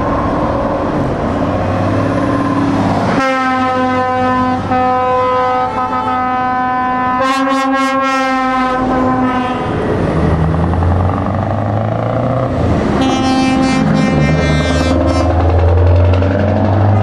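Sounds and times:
diesel truck engine passing: 0.0 - 7.2, 8.4 - 17.0
truck air horn chord: 3.2 - 9.7, 13.0 - 15.5.

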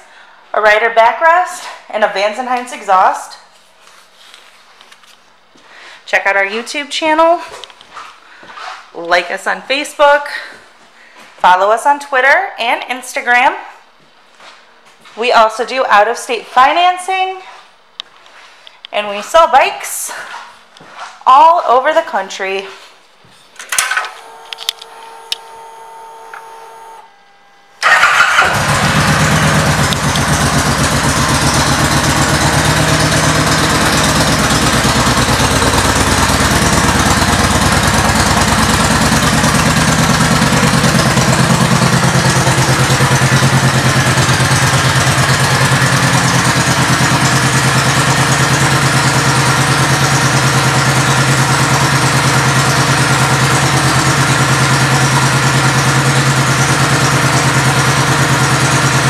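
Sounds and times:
motorcycle engine idling: 27.8 - 59.0.

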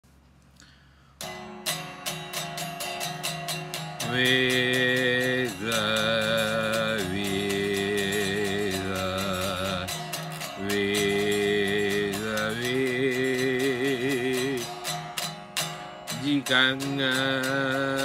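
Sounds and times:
electric guitar strumming: 1.2 - 18.0
man singing: 3.8 - 15.2, 16.1 - 18.0.

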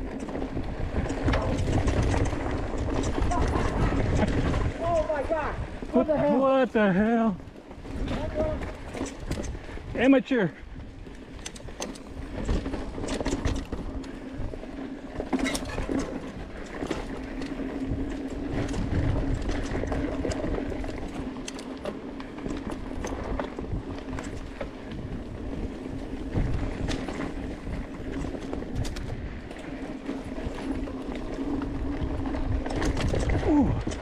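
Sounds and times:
wind noise on microphone: 0.0 - 6.2, 7.7 - 10.0, 10.6 - 21.4, 22.3 - 34.0
bike rattling and knocking: 0.0 - 34.0
tyres crunching over dirt: 0.0 - 34.0.

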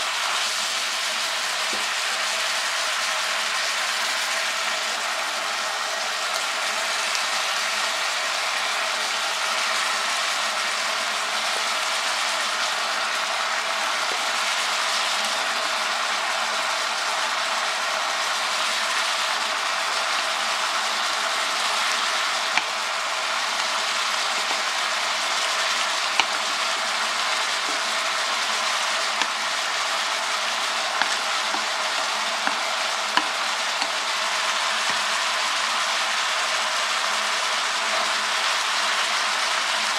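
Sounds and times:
meat sizzling in skillet: 0.0 - 39.9
chopsticks clicking against pan: 22.5 - 22.7, 25.8 - 26.4, 29.2 - 29.4, 31.0 - 34.0.

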